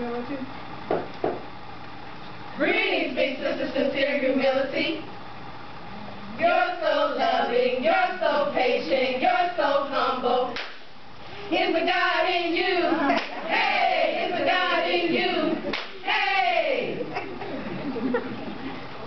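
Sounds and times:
women chanting in unison: 6.4 - 10.6, 11.5 - 17.0.

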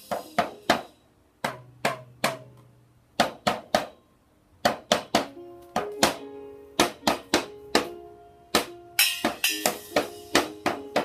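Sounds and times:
toy drum hits: 0.0 - 2.5, 8.6 - 11.0.

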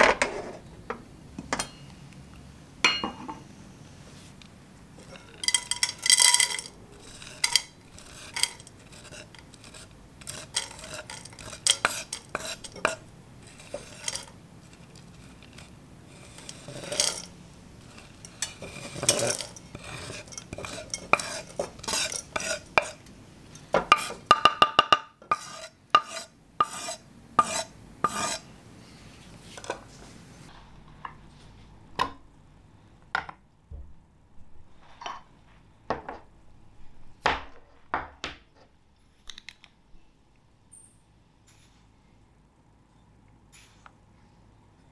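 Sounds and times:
knife scraping wooden board: 5.0 - 23.0, 23.8 - 24.3, 25.2 - 28.5
chocolate pieces dropping into pot: 5.4 - 6.8.

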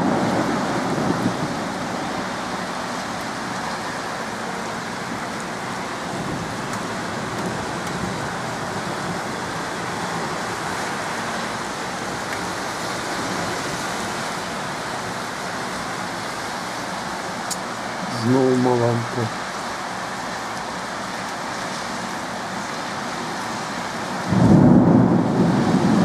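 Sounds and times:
thunder rumble: 0.0 - 2.5, 24.2 - 26.0
heavy rain pouring: 0.0 - 26.0.

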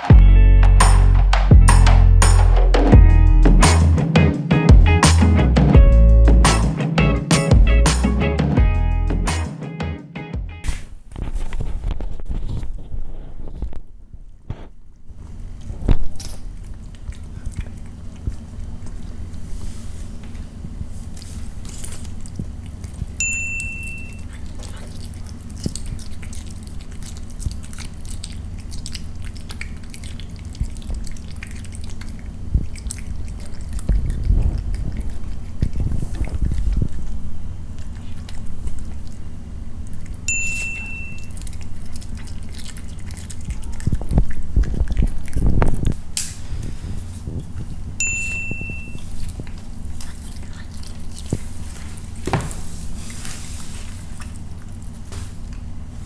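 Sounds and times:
low hum: 0.0 - 9.4, 10.4 - 56.0
cat chewing meat: 14.2 - 56.0
bell-like ding: 23.2 - 24.2, 40.3 - 41.3, 48.0 - 49.0.

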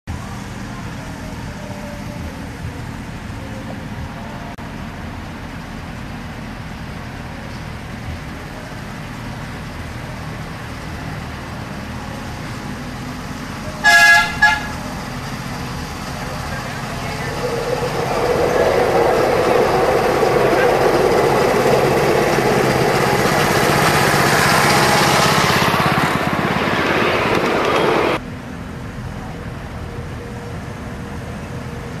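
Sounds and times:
locomotive engine running: 0.1 - 32.0
horn toots: 13.8 - 15.0.

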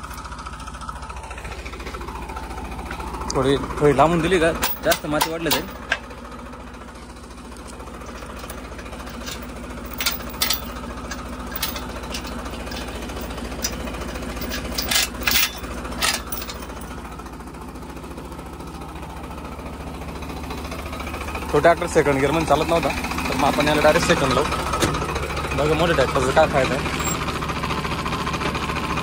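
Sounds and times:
tractor diesel engine under load: 0.0 - 29.0
metallic clanks from cultivator: 4.0 - 6.3, 7.6 - 17.2, 22.4 - 27.6.

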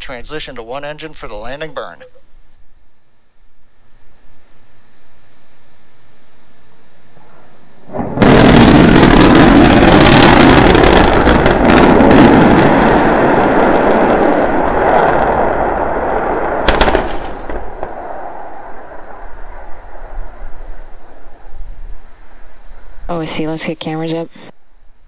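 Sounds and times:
rocket engine roar with cracks: 7.9 - 21.6.

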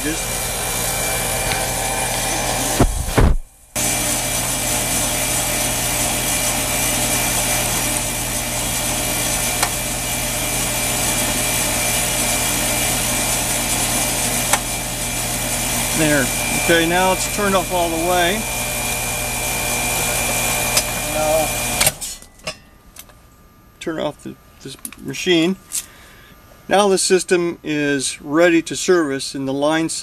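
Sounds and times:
compressor humming: 0.0 - 30.0
condenser fan rushing: 0.0 - 30.0.

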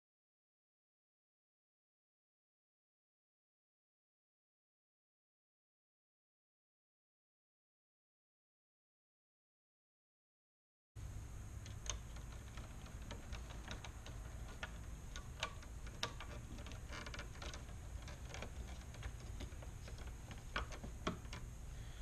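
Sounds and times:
low steady hum: 11.0 - 22.0.

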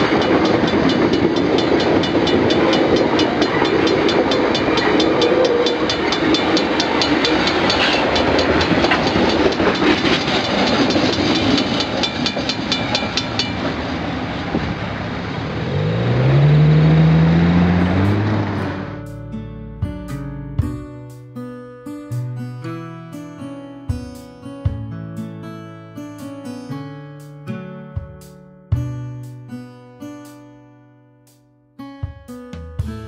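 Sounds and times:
level-crossing bell ringing: 0.0 - 10.8
train wheels clattering on rails: 0.0 - 14.8
vehicle engine pulling away: 13.9 - 19.2.

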